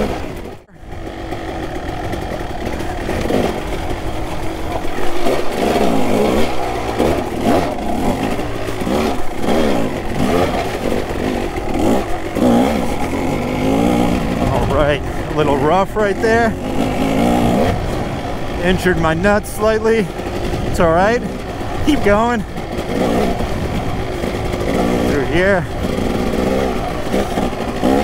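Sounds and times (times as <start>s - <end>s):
dirt bike engine revving: 0.0s - 28.0s
engine clatter: 0.0s - 28.0s.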